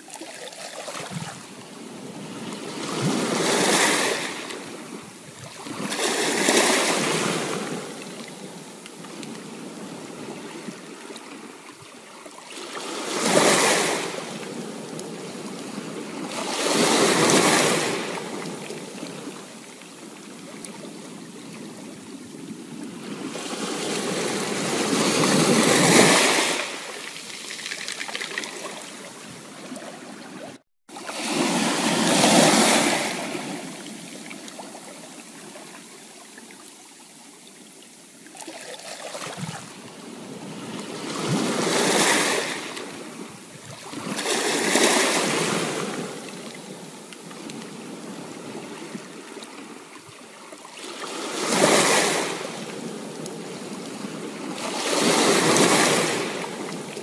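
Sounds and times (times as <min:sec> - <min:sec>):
ocean surf breaking: 0:00.9 - 0:08.7, 0:12.5 - 0:22.0, 0:22.6 - 0:35.8, 0:38.4 - 0:47.0, 0:50.8 - 0:57.0.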